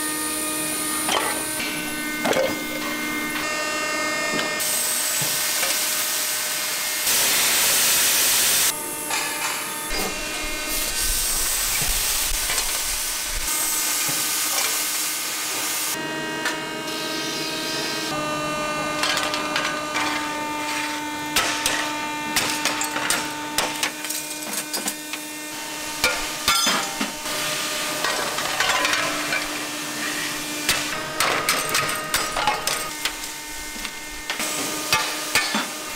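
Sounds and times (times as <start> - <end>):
factory hum: 0.0 - 35.9
die-casting machine hiss: 4.6 - 8.7, 9.9 - 16.0.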